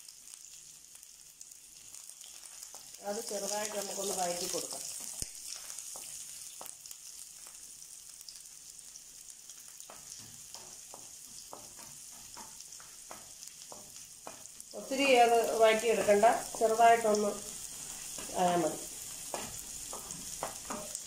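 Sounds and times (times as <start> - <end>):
quiet sizzle in frying pan: 0.0 - 21.0
spatula tapping and scraping pan: 3.9 - 6.9, 9.7 - 14.7, 17.3 - 21.0.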